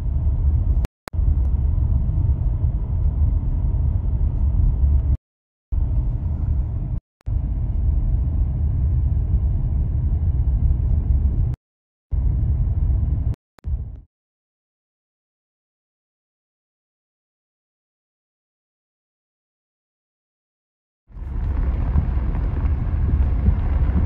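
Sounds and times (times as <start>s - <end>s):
car driving rumble from inside cabin: 0.0s - 5.2s, 5.8s - 11.6s, 12.2s - 14.0s, 21.1s - 24.0s.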